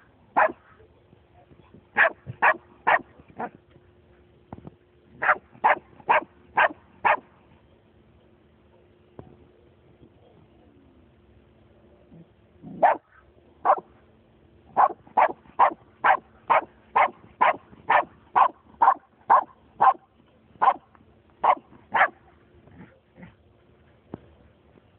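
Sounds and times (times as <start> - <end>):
dog barking: 0.4 - 0.6, 2.0 - 3.6, 5.2 - 7.3, 12.7 - 13.9, 14.8 - 22.2.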